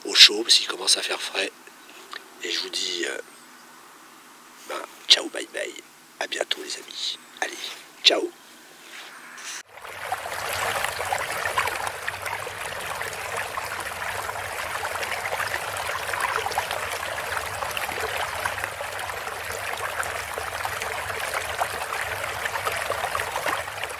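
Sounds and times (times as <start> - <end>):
water trickling: 9.6 - 23.9.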